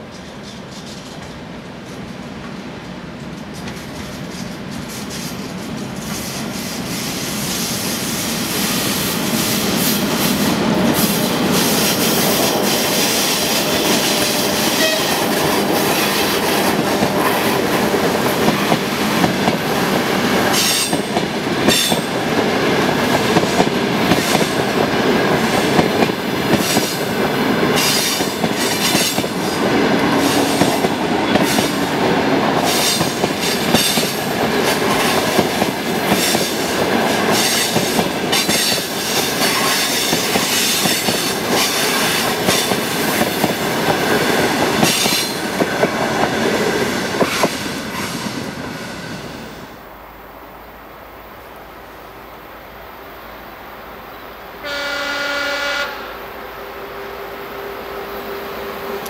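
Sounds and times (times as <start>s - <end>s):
wheels clicking over rail joints: 0.0s - 6.9s
train wheels rumbling on rails: 0.0s - 49.8s.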